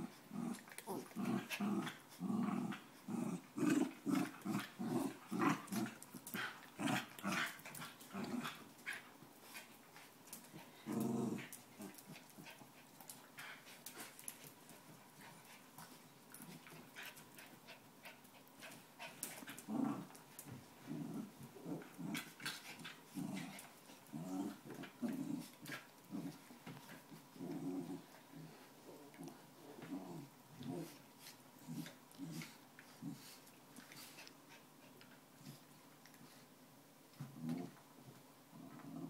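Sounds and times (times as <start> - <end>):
dogs growling: 0.0 - 9.0, 10.4 - 12.6, 19.0 - 31.0, 38.5 - 39.0.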